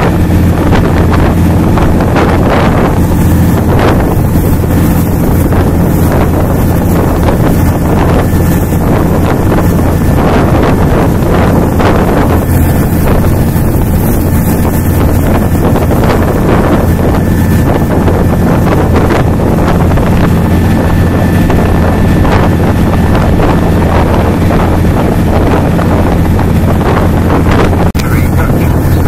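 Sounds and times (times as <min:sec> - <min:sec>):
motorboat engine running: 0:00.0 - 0:29.0
water rushing past hull: 0:00.0 - 0:29.0
wind buffeting microphone: 0:00.0 - 0:29.0.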